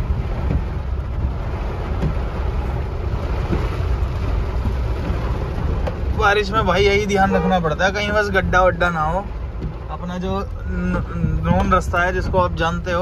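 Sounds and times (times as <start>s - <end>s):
car engine: 0.0s - 13.0s
rain on glass: 0.0s - 13.0s
water washing around car: 0.0s - 13.0s.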